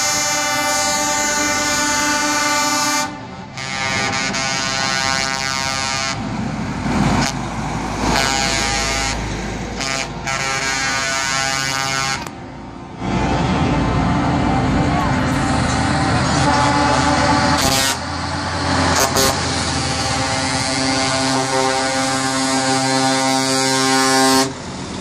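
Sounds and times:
truck air horn blasts: 0.0 - 6.3, 7.2 - 12.4, 16.2 - 24.6
diesel truck engine rumble: 0.0 - 25.0.

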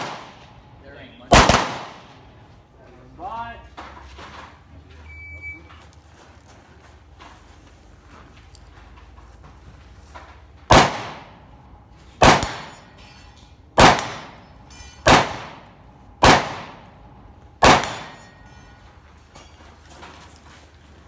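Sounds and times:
rifle shots with echo: 0.0 - 2.4, 10.7 - 11.4, 12.2 - 12.9, 13.8 - 14.4, 15.0 - 18.4.

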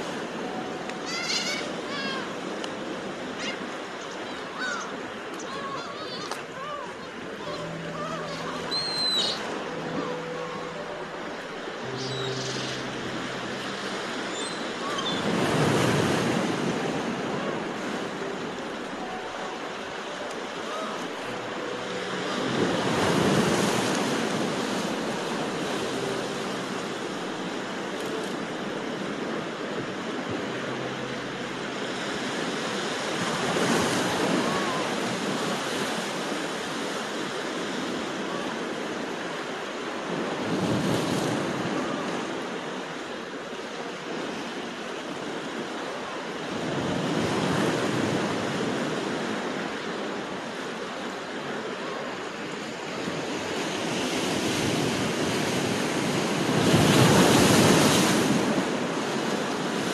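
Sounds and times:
waves breaking on rocks: 13.6 - 30.3, 31.7 - 59.9.

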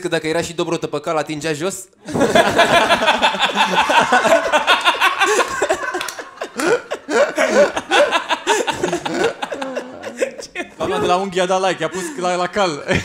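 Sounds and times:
men laughing heartily: 2.0 - 13.0.

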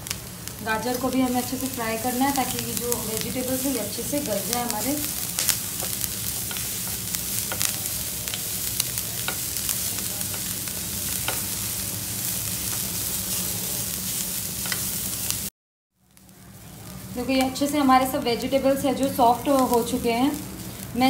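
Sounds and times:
vegetables sizzling in butter: 0.0 - 21.0
spatula tapping and scraping pan: 5.4 - 8.4, 14.6 - 14.9.

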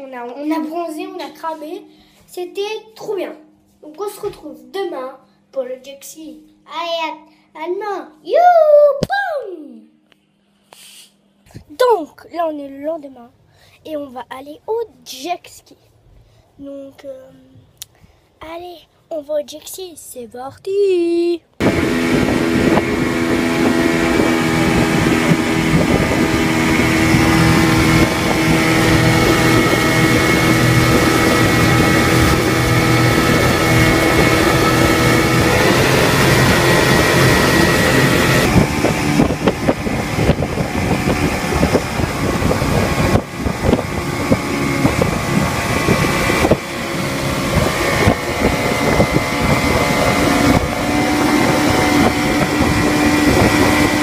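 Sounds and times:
churning water from wake: 21.6 - 54.0
motorboat engine running: 21.6 - 54.0
wind rushing: 21.6 - 54.0.

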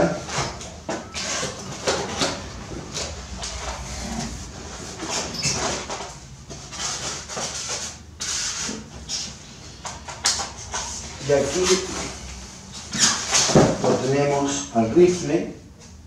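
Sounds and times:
cardboard lid scraping: 0.3 - 8.9.

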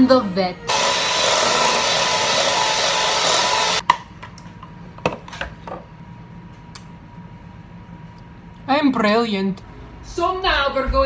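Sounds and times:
electric mixer beating batter: 0.7 - 3.8.

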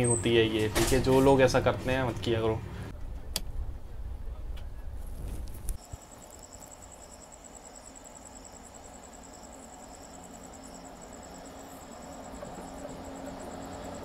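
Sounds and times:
insects chirping: 5.8 - 14.0.

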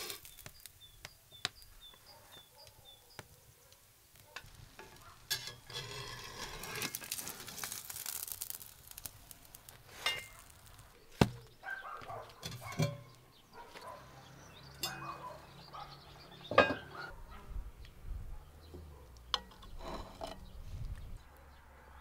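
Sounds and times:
wooden spatula scraping: 0.0 - 0.7, 4.5 - 11.4, 19.4 - 20.6
pancakes sizzling in a pan: 0.0 - 2.5, 4.0 - 10.9
cookware knocks: 16.5 - 16.9.

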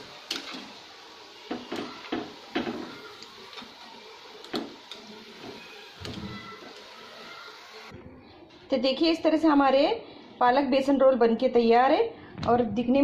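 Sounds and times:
oil sizzling: 0.0 - 8.0.

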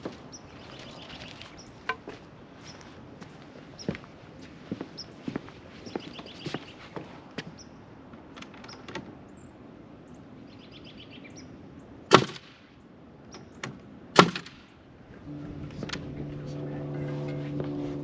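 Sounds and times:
nail gun firing into wood: 12.1 - 12.6, 13.6 - 14.7
low motor hum: 15.1 - 18.0.

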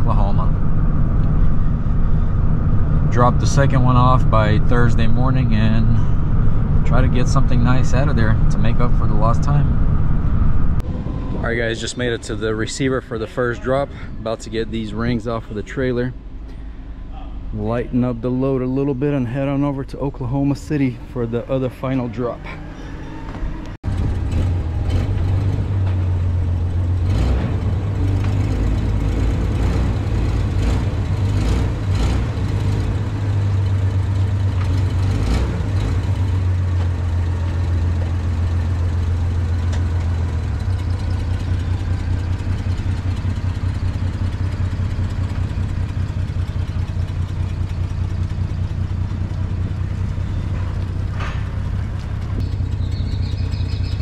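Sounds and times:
engine idling: 12.2 - 54.0.

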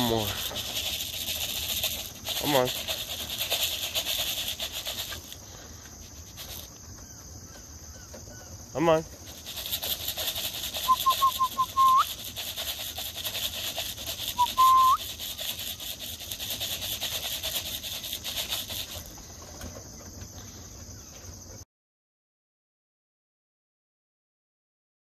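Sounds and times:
pulsing insect chorus: 0.0 - 21.6
person whistling: 10.8 - 12.1, 14.3 - 15.0.

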